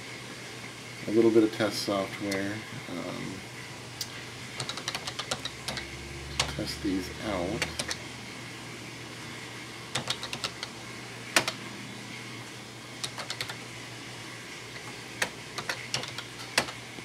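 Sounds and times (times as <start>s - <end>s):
background hum: 0.0s - 17.0s
keyboard key clicks: 4.6s - 5.8s, 10.0s - 10.7s, 11.4s - 11.6s, 13.0s - 13.6s, 15.2s - 16.8s.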